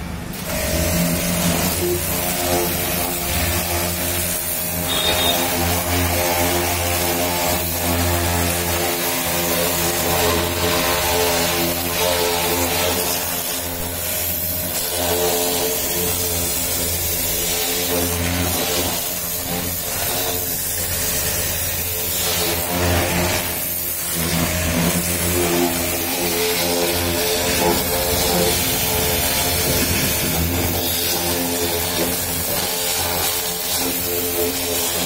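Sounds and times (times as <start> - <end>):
water jet hissing: 0.0 - 7.7, 12.2 - 35.0
pressure washer pump humming: 0.0 - 35.0.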